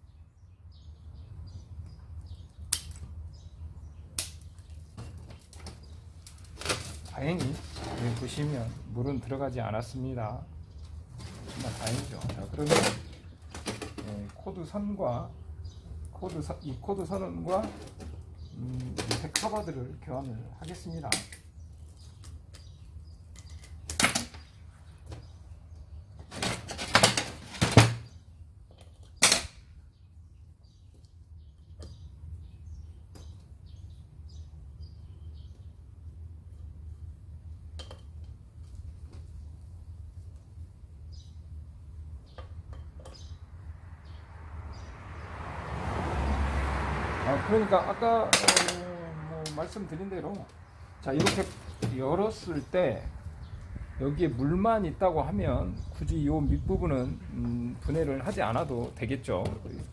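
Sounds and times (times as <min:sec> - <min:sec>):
small birds chirping: 0:00.0 - 0:45.4, 0:47.5 - 0:59.9
metal tools clanking on metal cover: 0:11.5 - 0:14.2, 0:48.3 - 0:48.9.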